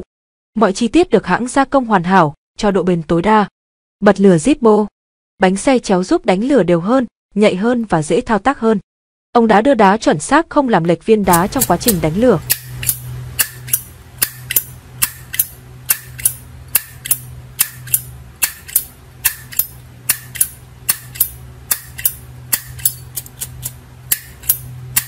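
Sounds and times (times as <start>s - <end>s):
lighter lid clicking open and shut: 11.3s - 25.0s.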